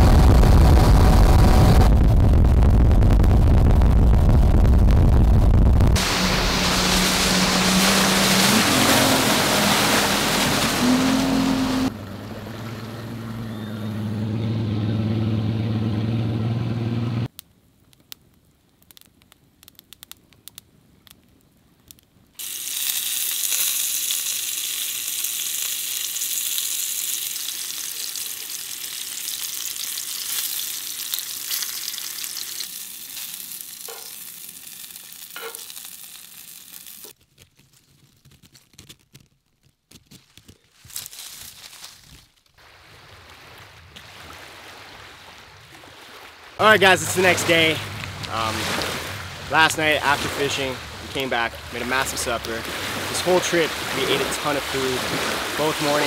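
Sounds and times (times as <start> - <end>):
boat motor running: 0.0 - 17.3, 46.6 - 55.9
water: 0.0 - 19.1, 20.8 - 37.2, 42.4 - 56.0
fish sizzling in hot oil: 22.4 - 37.2.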